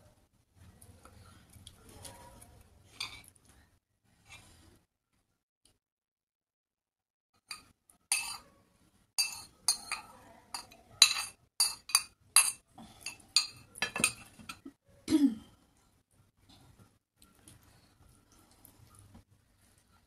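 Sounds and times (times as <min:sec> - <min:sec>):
spoon clinking against bowl: 0:07.5 - 0:08.4, 0:09.2 - 0:14.6.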